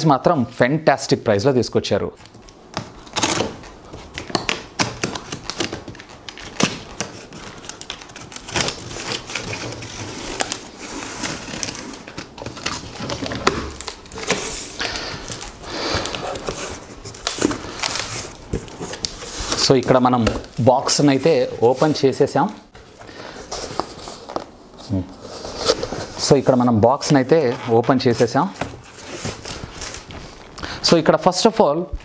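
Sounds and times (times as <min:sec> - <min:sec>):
packing tape being slit: 0:02.2 - 0:20.6
cardboard flaps clicking and scraping: 0:02.7 - 0:21.9.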